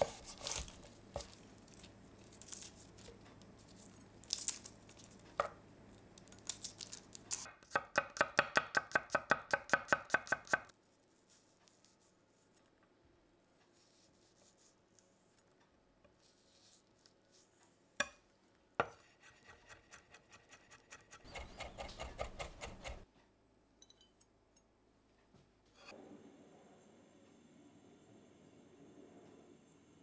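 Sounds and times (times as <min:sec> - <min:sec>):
knife chopping on cutting board: 0:21.2 - 0:23.0.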